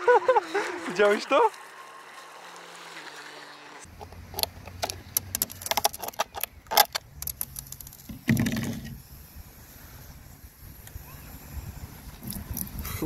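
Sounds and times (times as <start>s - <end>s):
plastic clicks and rattles: 3.9s - 9.0s.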